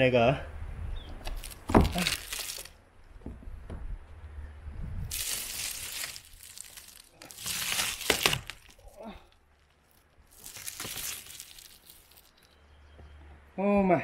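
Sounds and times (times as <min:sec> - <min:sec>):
solar panel crackling: 0:01.2 - 0:02.8, 0:05.1 - 0:12.6
tape tearing away: 0:01.2 - 0:02.8, 0:05.1 - 0:12.5.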